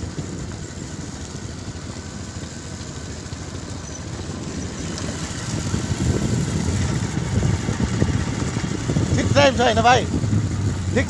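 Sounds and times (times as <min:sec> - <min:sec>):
motorcycle engine rumble: 0:00.0 - 0:11.0.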